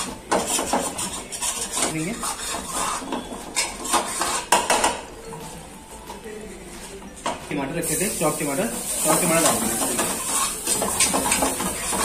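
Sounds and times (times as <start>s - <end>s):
ladle scraping a steel pan: 0.4s - 4.5s.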